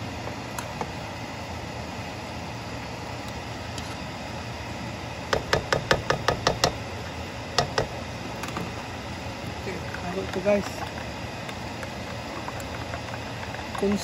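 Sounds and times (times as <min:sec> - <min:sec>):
spatula knocking on wok: 0:05.3 - 0:06.8.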